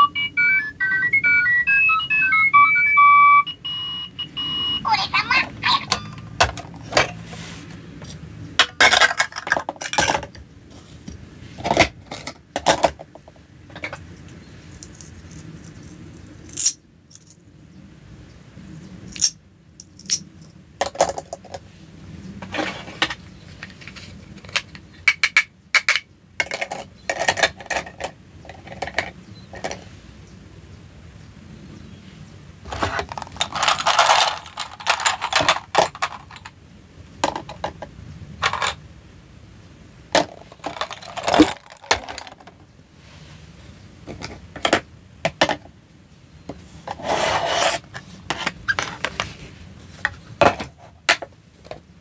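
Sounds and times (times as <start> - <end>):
plastic toys clacking: 8.6 - 10.4, 11.6 - 14.1, 14.7 - 17.4, 19.1 - 21.6, 22.4 - 29.8, 32.7 - 36.6, 37.2 - 38.8, 40.1 - 42.6.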